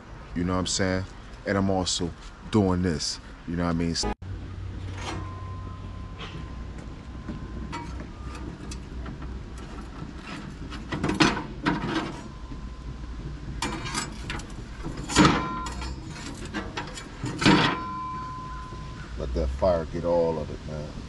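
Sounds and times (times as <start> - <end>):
metal scraping and clanking: 4.0 - 19.3.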